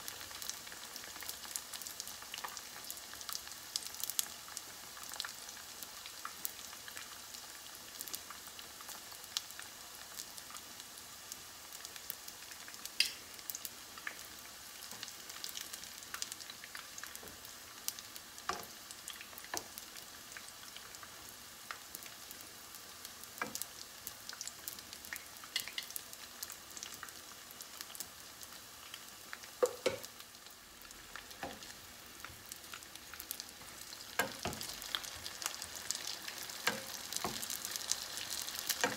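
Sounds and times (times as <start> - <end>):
deep-frying sizzle and crackle: 0.0 - 38.9.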